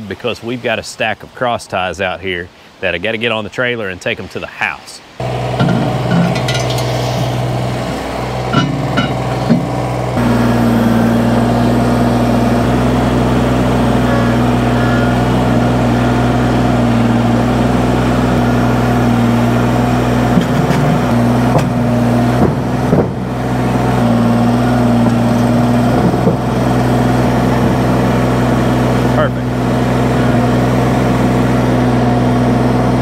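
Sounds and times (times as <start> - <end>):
tractor diesel engine running: 5.2 - 33.0
short knocks: 20.3 - 23.4.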